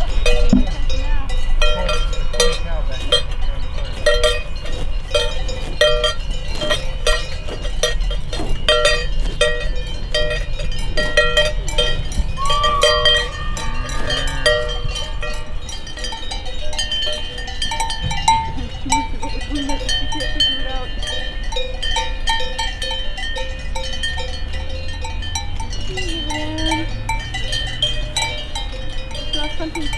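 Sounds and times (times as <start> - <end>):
cowbells clanking: 0.0 - 29.9.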